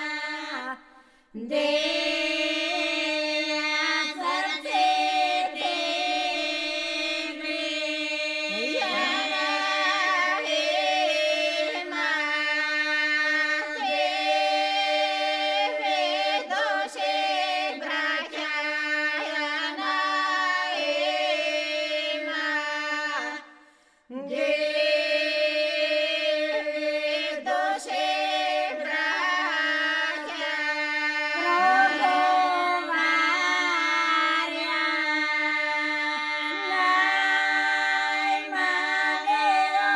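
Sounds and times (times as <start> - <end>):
folk group singing unaccompanied: 0.0 - 39.9
singer holding a drone: 8.5 - 9.6.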